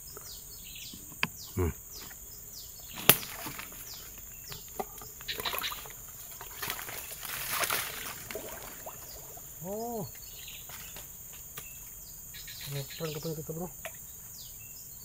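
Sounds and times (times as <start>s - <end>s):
forest insects buzzing: 0.0s - 15.0s
sharp snap: 3.0s - 3.4s
hand splashing in shallow water: 6.5s - 9.4s.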